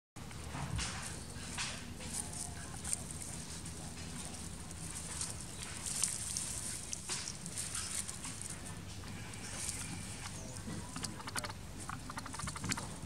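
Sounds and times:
leaves rustling under monkey's steps: 0.9s - 11.1s.

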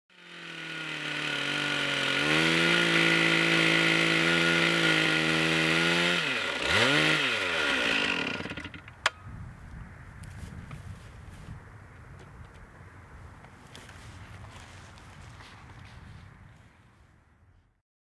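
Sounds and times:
chainsaw cutting log: 0.1s - 9.1s.

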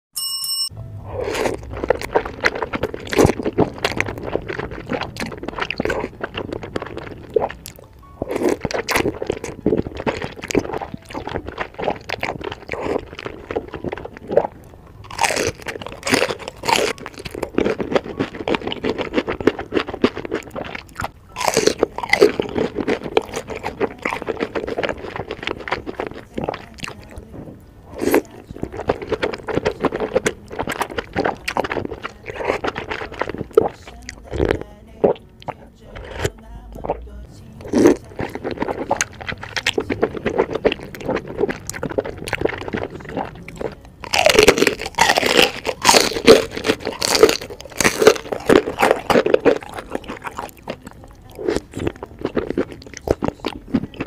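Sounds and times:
noodles slurped: 1.0s - 37.0s, 37.6s - 54.0s
chewing and wet mouth noises: 1.0s - 54.0s
crisp bites into fried shrimp: 15.1s - 27.1s, 37.6s - 54.0s.

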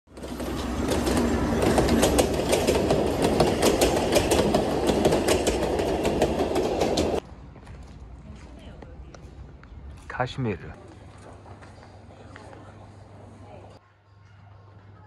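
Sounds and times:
passenger train rumbling past: 0.1s - 7.2s
wheels clicking over rail joints: 0.1s - 7.2s.

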